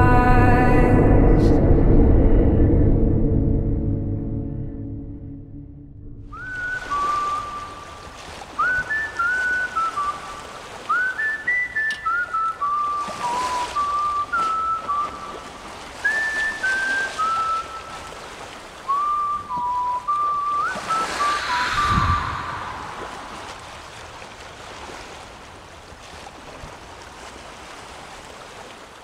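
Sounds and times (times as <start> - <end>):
person whistling a tune: 6.3 - 15.4, 16.0 - 18.1, 18.9 - 23.6.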